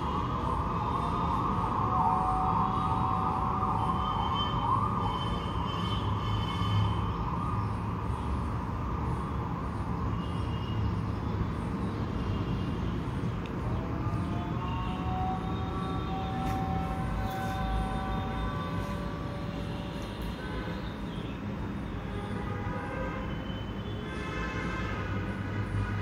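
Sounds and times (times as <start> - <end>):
wavering siren-like wailing tone: 0.0 - 9.7, 13.6 - 21.1.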